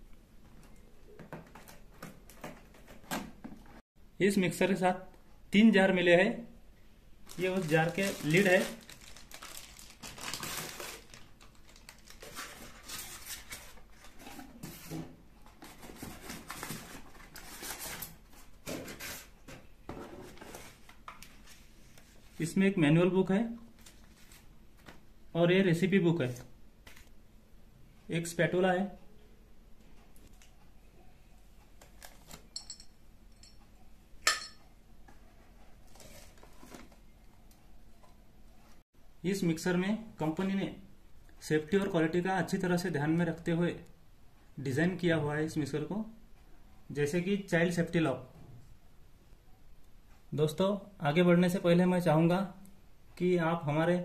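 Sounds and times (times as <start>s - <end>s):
packaging rustling and scraping: 7.3s - 22.4s, 35.4s - 37.1s.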